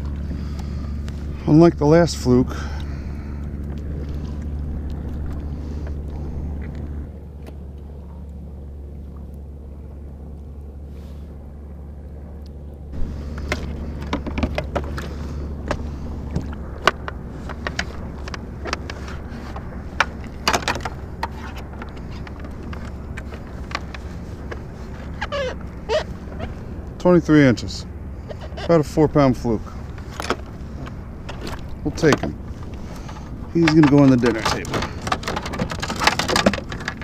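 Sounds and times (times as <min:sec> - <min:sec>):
steady low rumble: 0:00.0 - 0:37.0
clicks and knocks of metal cable: 0:13.0 - 0:25.7, 0:29.8 - 0:37.0.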